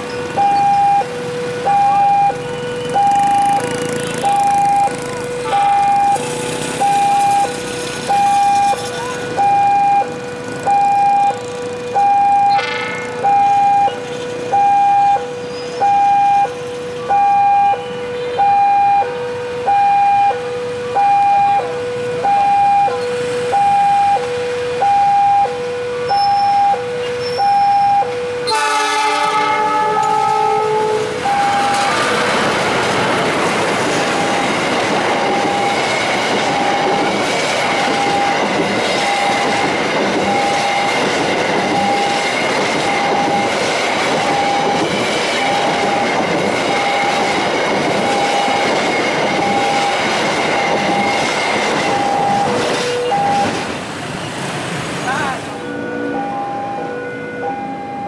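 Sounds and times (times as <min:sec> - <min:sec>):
level crossing alarm ding-dong: 0:00.3 - 0:06.2, 0:06.8 - 0:29.0, 0:31.2 - 0:31.9, 0:41.7 - 0:47.2, 0:51.9 - 0:53.6, 0:55.6 - 0:58.0
train horn chord: 0:04.9 - 0:06.0, 0:12.5 - 0:13.3, 0:28.0 - 0:32.8, 0:55.5 - 0:58.0.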